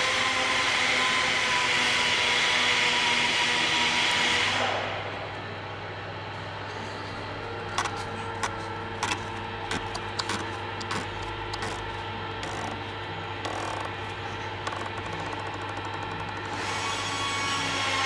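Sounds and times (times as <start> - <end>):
plastic cap clicking and scraping: 7.7 - 12.8.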